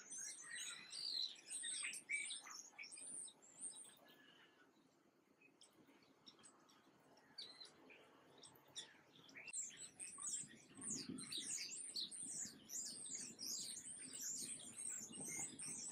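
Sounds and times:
songbirds chirping: 0:00.0 - 0:15.9.

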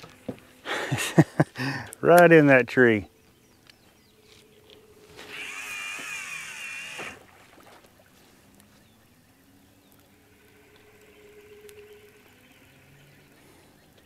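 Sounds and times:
fishing reel spool whirring: 0:03.4 - 0:14.0.

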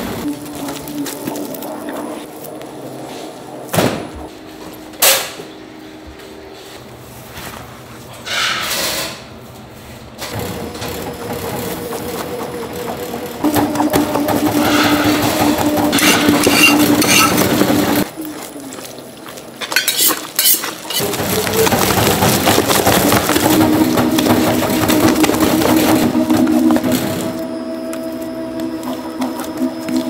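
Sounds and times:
rice pounding machine motor hum: 0:10.3 - 0:18.2, 0:20.7 - 0:30.0.

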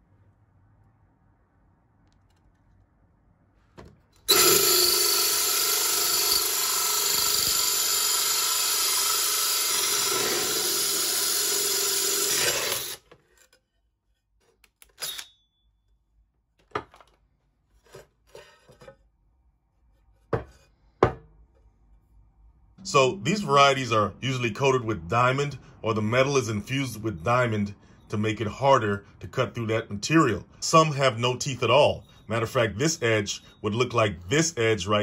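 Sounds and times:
drill grinding through tile: 0:04.3 - 0:13.1.

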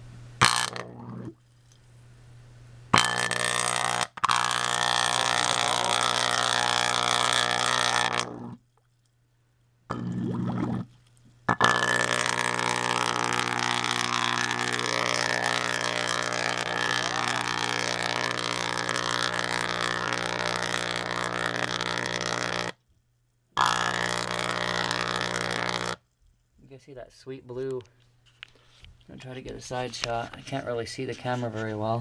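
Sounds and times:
electrical arc buzzing: 0:00.0 - 0:01.4, 0:02.9 - 0:08.8, 0:09.9 - 0:22.8, 0:23.5 - 0:26.1
mains hum: 0:00.0 - 0:32.0.

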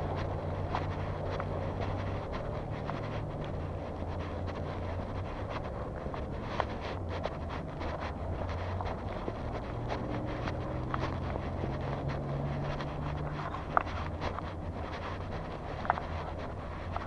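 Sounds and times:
footsteps: 0:00.0 - 0:17.0
low rumble: 0:00.0 - 0:17.0
vehicle engine running: 0:00.0 - 0:17.0
wind on microphone: 0:00.0 - 0:17.0.

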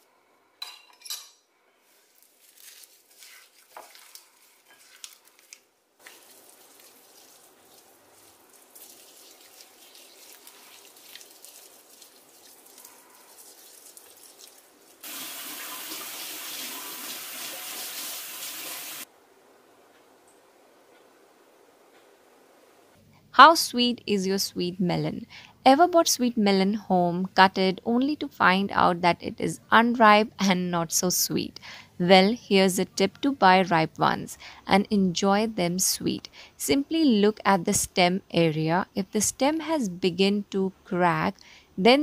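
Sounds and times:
gritty rubbing on skin: 0:01.9 - 0:15.0.

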